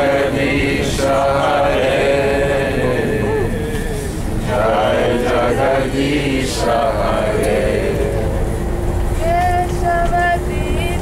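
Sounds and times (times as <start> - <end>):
group chanting: 0.0 - 8.4
bus engine and road rumble: 0.0 - 11.0.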